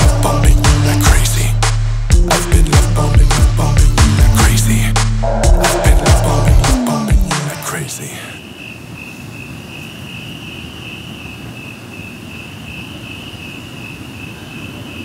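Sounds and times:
low rumbling noise: 0:00.0 - 0:03.7, 0:04.7 - 0:08.2
crickets trilling: 0:07.7 - 0:15.0.

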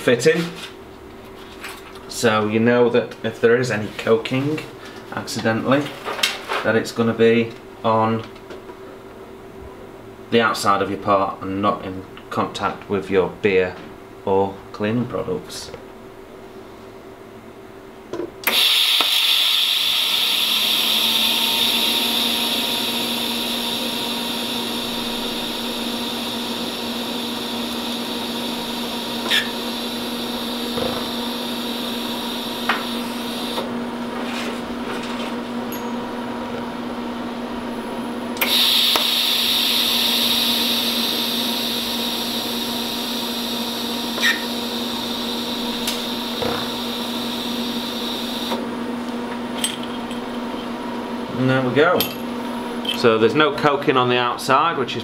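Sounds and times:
welding arc hissing: 0:18.5 - 0:33.7, 0:38.4 - 0:48.6.

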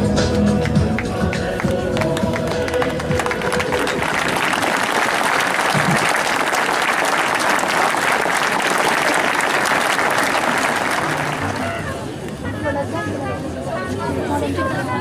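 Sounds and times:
large crowd applauding: 0:00.6 - 0:12.2.

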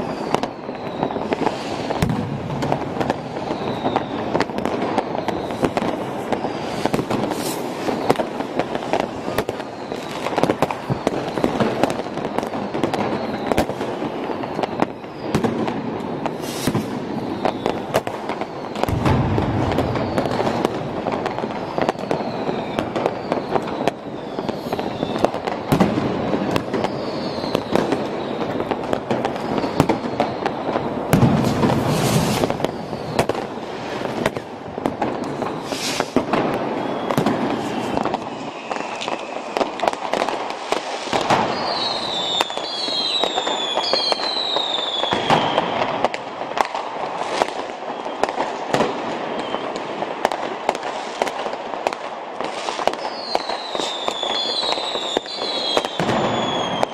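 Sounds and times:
falling firework whistles: 0:00.0 - 0:56.9
fireworks bangs and crackles: 0:00.0 - 0:56.9.

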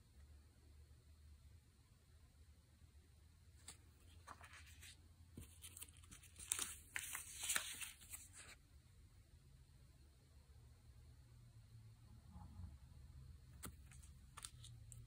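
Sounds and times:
paper stickers rustling: 0:03.6 - 0:08.6, 0:13.6 - 0:15.0.

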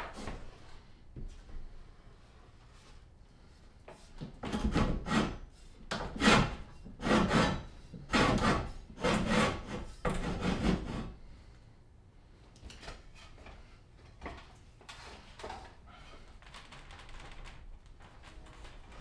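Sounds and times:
scraping on wood: 0:03.9 - 0:11.2.

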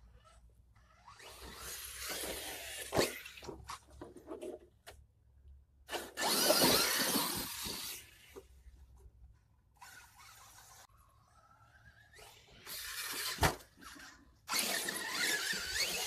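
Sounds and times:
rc truck tyre and drivetrain noise: 0:00.0 - 0:16.0
rc truck rushing past: 0:00.1 - 0:03.6, 0:05.9 - 0:08.5, 0:09.8 - 0:16.0.

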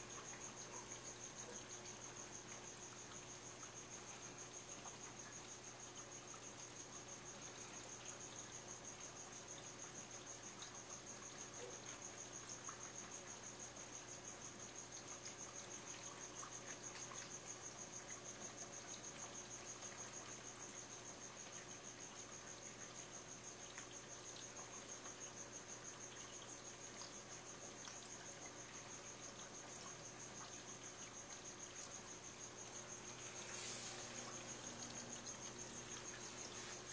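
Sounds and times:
aquarium equipment hum: 0:00.0 - 0:36.9.

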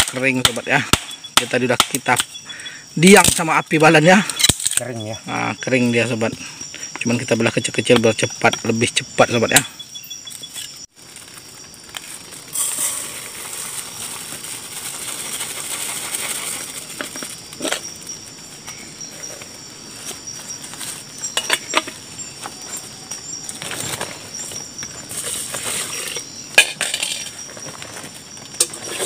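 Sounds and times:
insects chirring: 0:00.0 - 0:29.0
rice poured into metal pot: 0:12.5 - 0:14.2.

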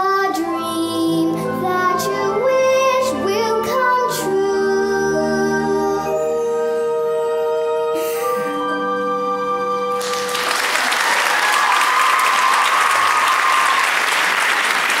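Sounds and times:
audience applause: 0:09.9 - 0:15.0.

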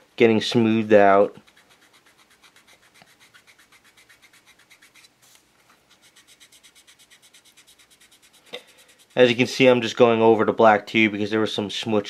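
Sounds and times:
sandpaper rubbing back and forth: 0:01.2 - 0:09.7.

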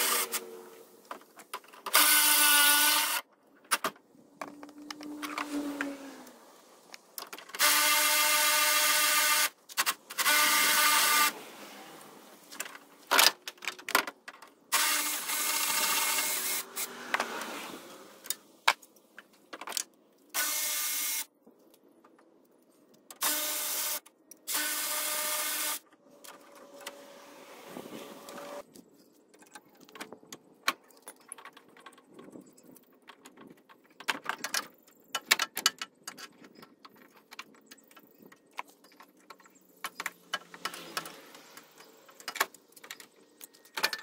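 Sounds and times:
metal parts clicking and clanking: 0:12.5 - 0:17.2, 0:28.7 - 0:44.0.

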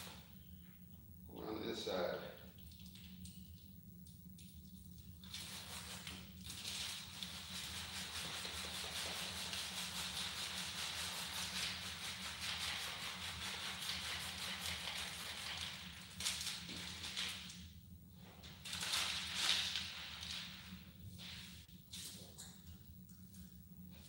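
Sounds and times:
plastic film crinkling: 0:18.6 - 0:20.7.

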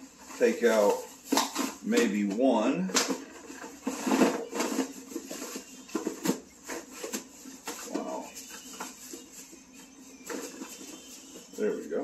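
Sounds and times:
plastic containers clacking: 0:00.4 - 0:12.0
plastic packaging crinkling: 0:02.9 - 0:12.0.

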